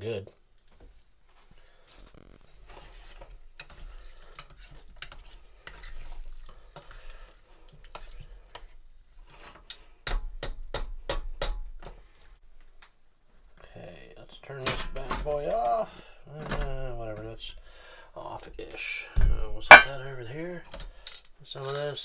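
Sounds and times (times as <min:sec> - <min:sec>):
spoon stirring in metal pot: 0:02.6 - 0:07.2, 0:19.7 - 0:20.0
spoon clacking against pot: 0:19.7 - 0:20.0.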